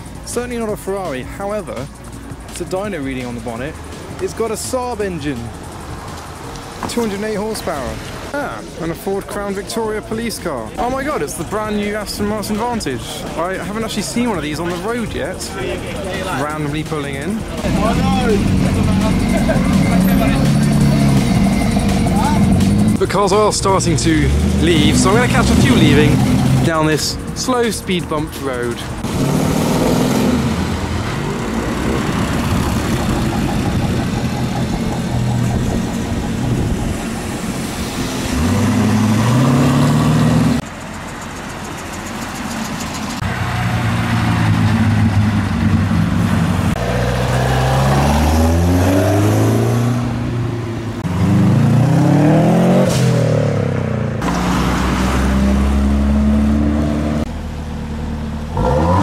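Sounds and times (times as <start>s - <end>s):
cars accelerating past: 13.5s - 27.2s, 27.9s - 59.0s.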